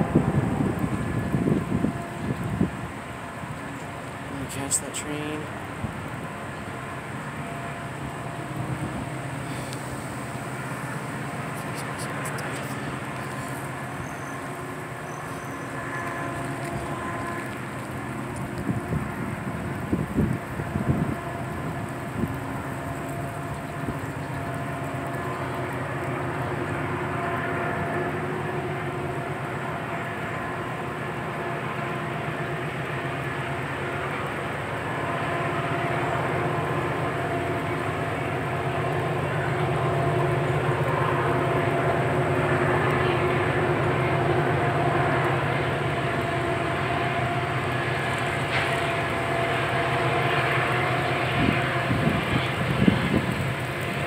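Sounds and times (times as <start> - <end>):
diesel locomotive engines running: 0.0 - 54.0
train horn: 12.4 - 54.0.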